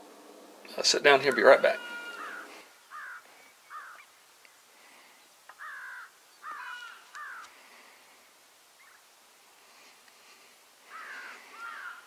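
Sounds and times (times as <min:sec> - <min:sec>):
crows cawing: 0:01.3 - 0:04.1, 0:04.8 - 0:08.0, 0:10.8 - 0:12.0.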